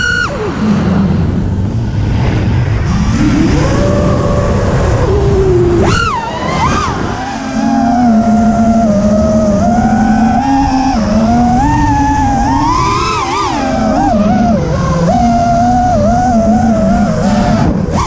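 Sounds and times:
drone motors whining: 0:00.0 - 0:02.0, 0:02.8 - 0:18.0
rush of air: 0:00.2 - 0:07.8.

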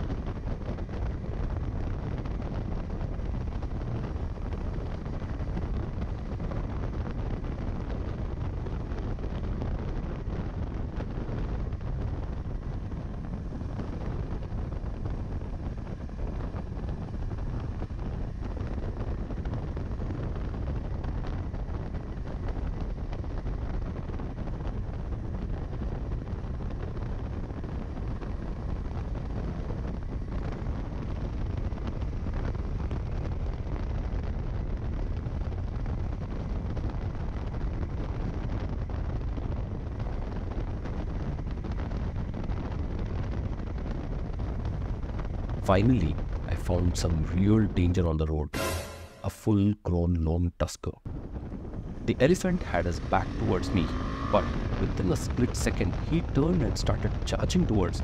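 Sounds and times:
wind buffeting microphone: 0:00.0 - 0:47.6, 0:51.1 - 0:53.2
motorcycle engine running: 0:53.0 - 0:55.0.

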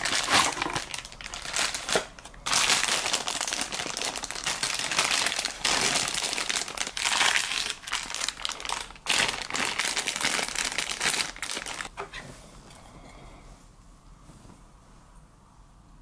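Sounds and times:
plastic packaging crinkling: 0:00.0 - 0:11.9.

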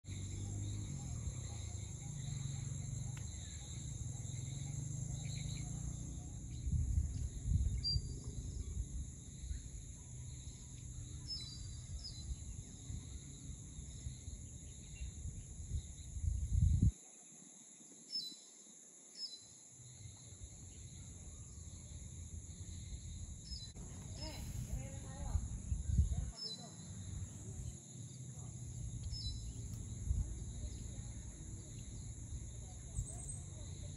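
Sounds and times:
bird chirps: 0:00.1 - 0:16.3, 0:28.9 - 0:33.9
insects droning: 0:00.1 - 0:33.9
wind rumble on microphone: 0:00.2 - 0:17.0, 0:20.5 - 0:26.4, 0:28.7 - 0:33.9.

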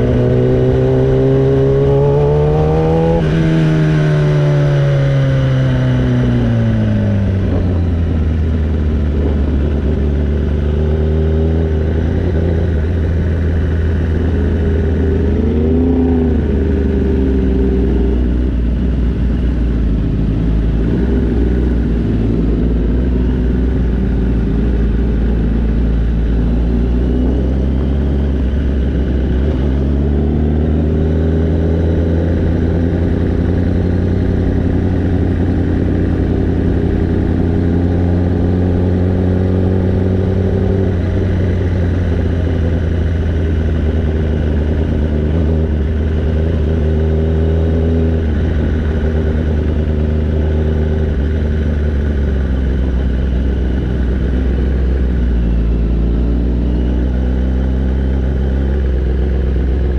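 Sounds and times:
motorbike engine revving: 0:00.0 - 0:18.7.

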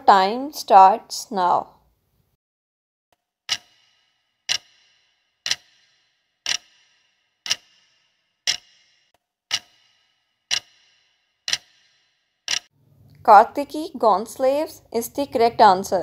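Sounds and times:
clock ticking: 0:03.5 - 0:12.7.

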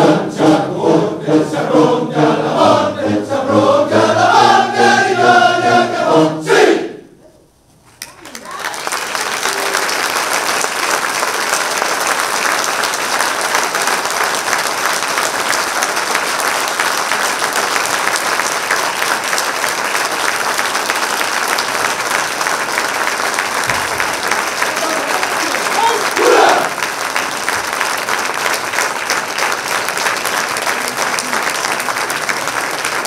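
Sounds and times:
large audience applauding: 0:08.0 - 0:33.0.

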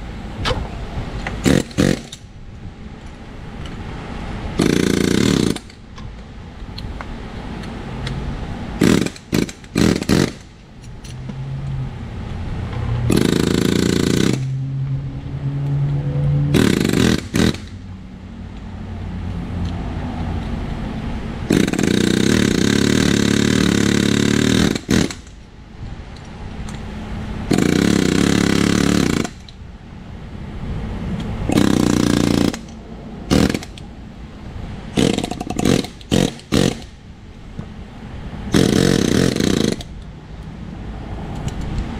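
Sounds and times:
pneumatic air hammer rattling: 0:00.4 - 0:02.3, 0:04.6 - 0:06.9, 0:08.8 - 0:11.4, 0:13.1 - 0:14.6, 0:16.5 - 0:17.9, 0:21.5 - 0:25.5, 0:26.1 - 0:29.6, 0:31.4 - 0:33.9, 0:34.9 - 0:37.7, 0:38.5 - 0:40.1.

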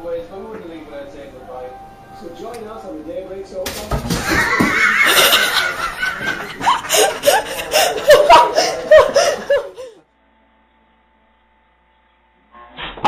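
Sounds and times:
person laughing: 0:04.2 - 0:10.0.

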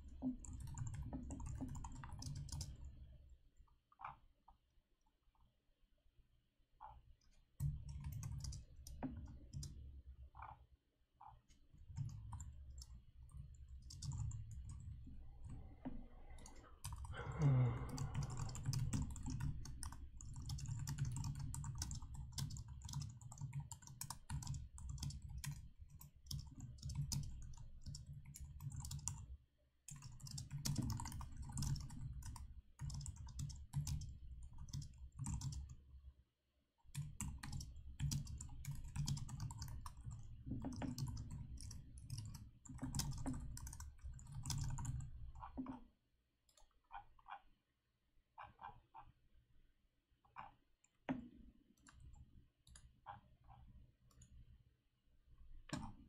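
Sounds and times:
computer keyboard typing: 0:00.0 - 0:02.9, 0:07.6 - 0:09.8, 0:11.9 - 0:15.6, 0:16.3 - 0:29.3, 0:29.9 - 0:35.8, 0:36.9 - 0:45.8.

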